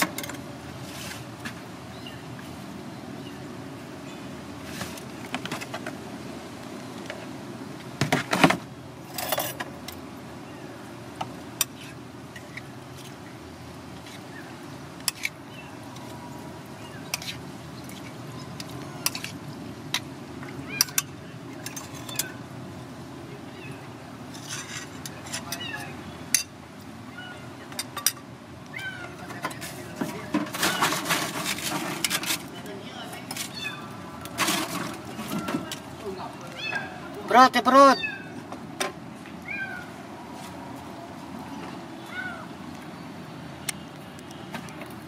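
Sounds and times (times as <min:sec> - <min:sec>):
street traffic hum: 0:00.0 - 0:45.0.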